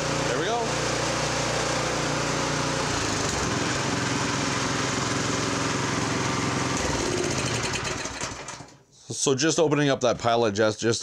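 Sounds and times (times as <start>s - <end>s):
small engine running steadily: 0.0s - 8.7s.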